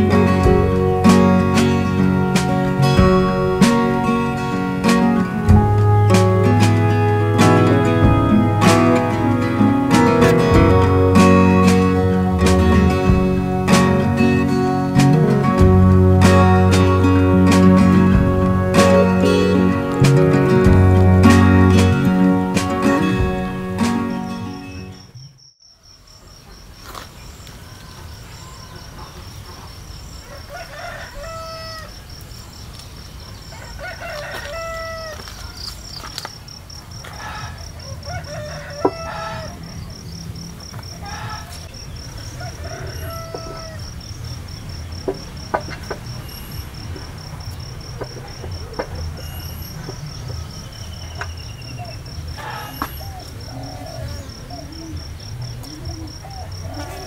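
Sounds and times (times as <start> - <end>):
chickens calling: 37.1 - 40.0, 40.8 - 44.0, 51.1 - 57.0.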